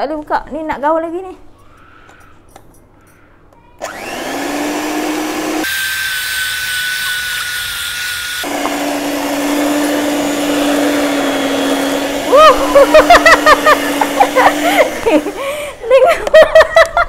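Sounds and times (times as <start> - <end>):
electric mixer beating batter: 3.8 - 15.5.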